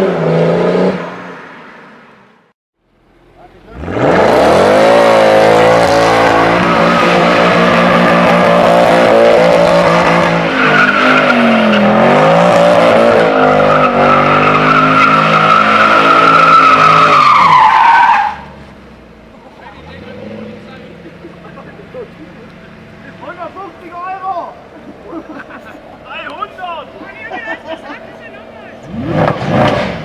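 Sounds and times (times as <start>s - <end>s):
car engine at high revs: 2.9s - 17.6s, 18.6s - 23.5s, 28.0s - 30.0s
tyres spinning and squealing: 3.6s - 30.0s.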